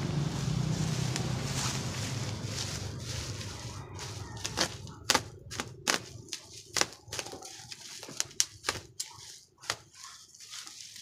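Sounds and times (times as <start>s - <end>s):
plastic strands snapping: 4.4s - 10.0s.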